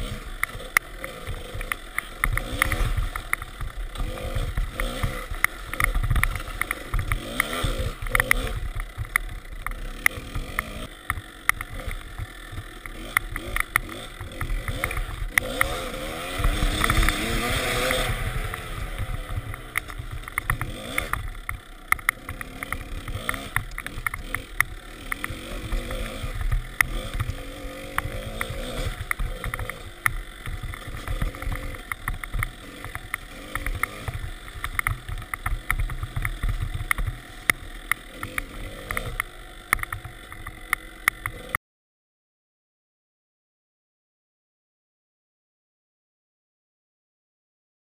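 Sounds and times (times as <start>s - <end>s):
bike knocking over bumps: 0.0s - 41.4s
dirt bike engine revving: 0.0s - 41.6s.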